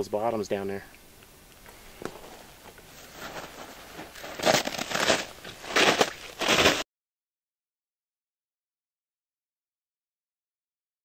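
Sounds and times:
footsteps on rough ground: 0:01.7 - 0:06.8.

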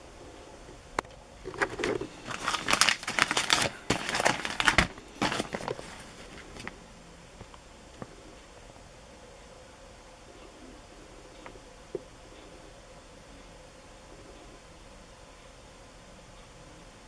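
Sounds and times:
plastic wrapping crinkling: 0:01.4 - 0:06.8.

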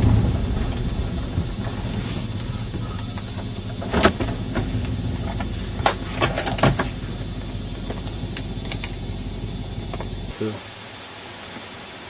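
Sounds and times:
vehicle body knocks and rattles: 0:00.0 - 0:08.9
engine and tyres droning: 0:00.0 - 0:10.3.

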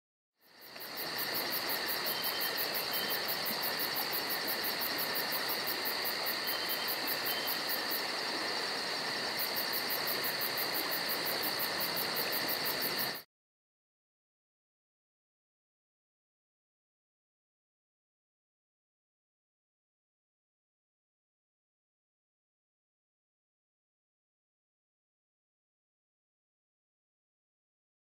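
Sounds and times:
insects chirring: 0:00.4 - 0:13.2.

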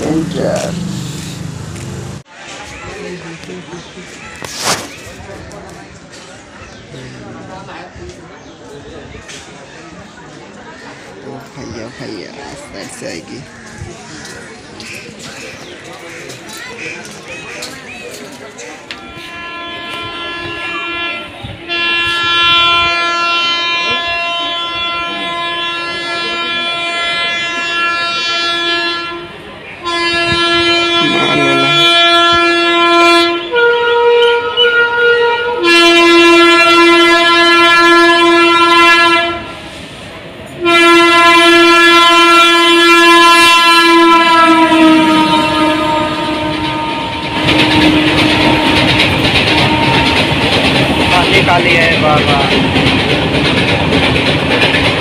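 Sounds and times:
locomotive horn blasts: 0:19.1 - 0:39.7, 0:40.6 - 0:51.4.

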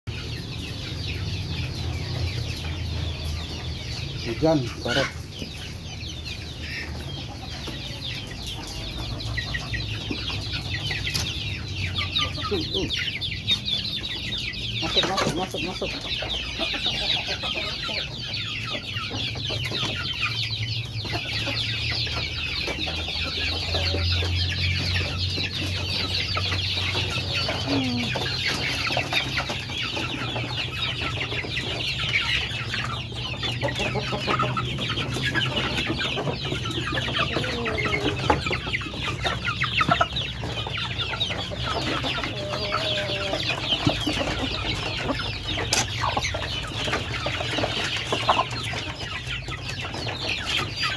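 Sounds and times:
chickens clucking: 0:00.1 - 0:50.9
high-pitched chatter: 0:27.2 - 0:28.8.

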